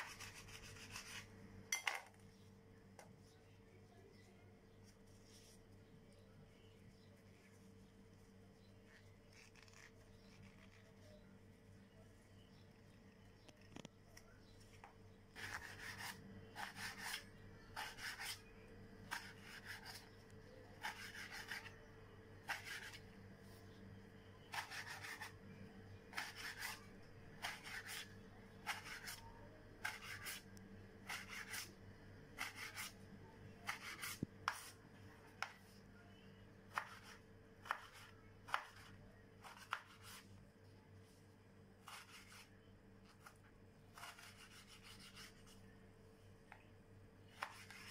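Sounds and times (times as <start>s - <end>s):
knife slicing tomato on board: 0.0s - 1.3s, 15.4s - 18.4s, 19.1s - 20.0s, 20.8s - 21.7s, 22.4s - 23.0s, 24.5s - 25.3s, 26.1s - 26.8s, 27.4s - 30.4s, 31.0s - 31.7s, 32.4s - 33.0s, 33.6s - 34.8s, 36.7s - 40.2s, 41.8s - 42.5s, 43.1s - 45.5s, 47.3s - 47.9s
faint steady hum: 0.0s - 47.9s.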